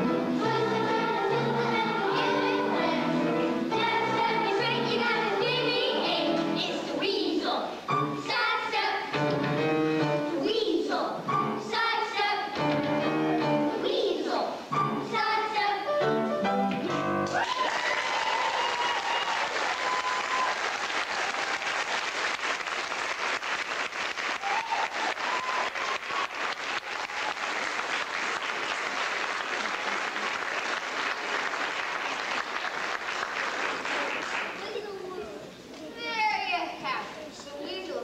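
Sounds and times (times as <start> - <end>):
audience applauding: 17.3 - 34.7.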